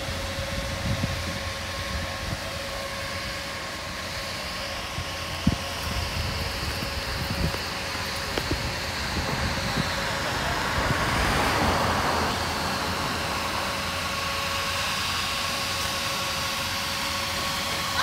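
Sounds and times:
low traffic rumble: 0.0s - 18.0s
car driving slowly past: 6.5s - 15.5s.

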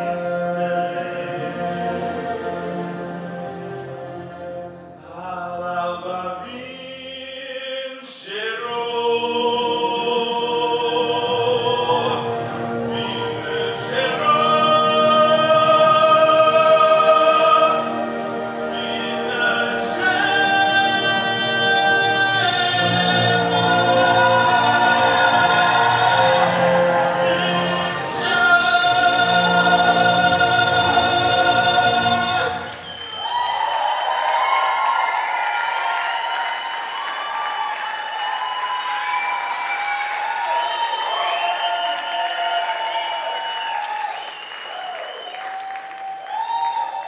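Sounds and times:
man singing into a microphone: 0.0s - 1.6s, 5.0s - 18.0s, 18.6s - 32.8s
sustained backing music: 0.0s - 5.2s, 9.7s - 32.8s.

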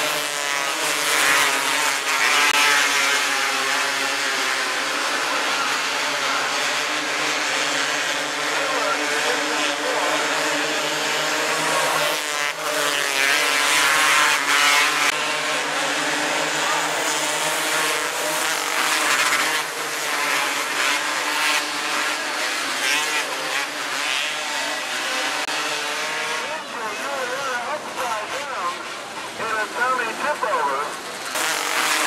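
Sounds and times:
racing car engines revving: 0.0s - 32.0s.

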